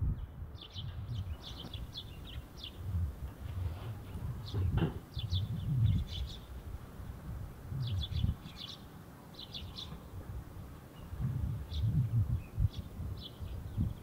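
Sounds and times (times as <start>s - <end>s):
steady low rumble: 0.0s - 14.0s
sparrows chirping: 0.1s - 14.0s.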